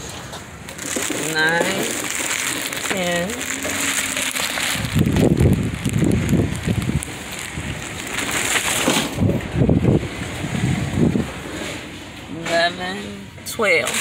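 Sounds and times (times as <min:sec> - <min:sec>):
plastic packages crinkling: 0:00.0 - 0:10.4.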